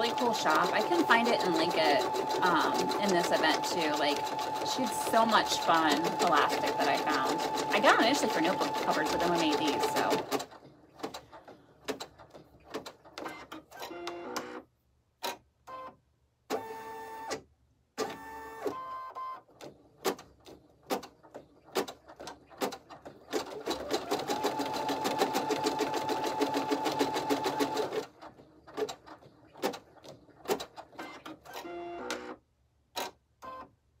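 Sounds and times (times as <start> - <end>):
embroidery machine stitching: 0.0 - 14.6, 19.5 - 32.4.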